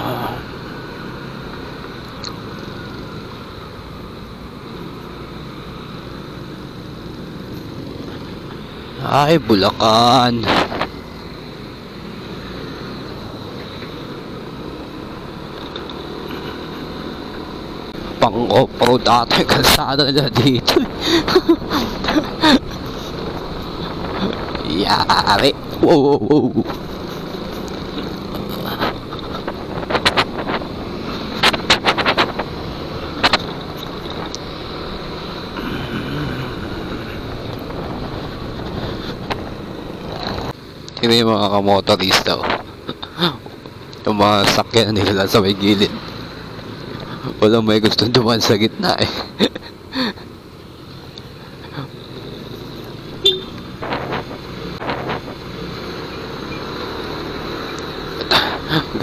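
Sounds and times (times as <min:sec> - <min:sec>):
wind and road noise: 0:00.0 - 0:59.0
vehicle horn honking: 0:53.2 - 0:53.7.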